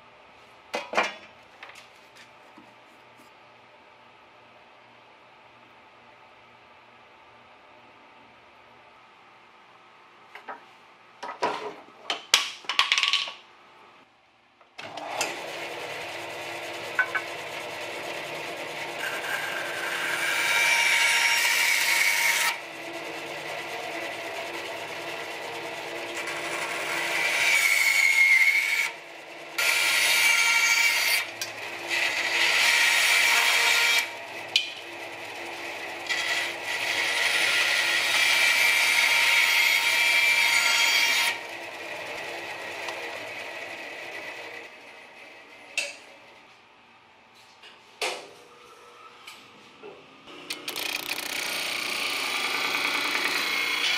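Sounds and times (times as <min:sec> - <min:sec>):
bandsaw blade cutting wood: 0:14.8 - 0:29.0, 0:29.6 - 0:44.6, 0:50.4 - 0:53.9
bandsaw running: 0:14.8 - 0:45.2, 0:50.3 - 0:53.9.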